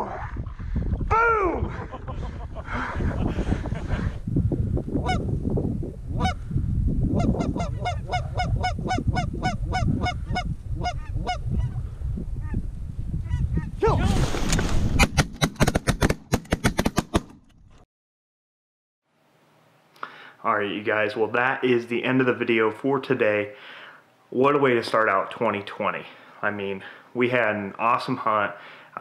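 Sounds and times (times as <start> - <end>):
wind rumble on microphone: 0.0 - 15.0
geese honking: 7.2 - 11.8.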